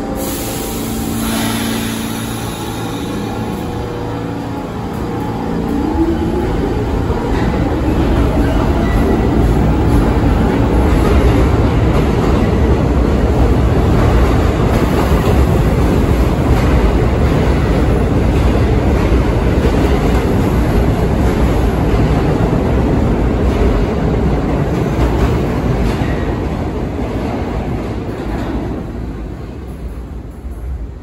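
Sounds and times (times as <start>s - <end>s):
subway train wheels on rail: 0.0s - 31.0s.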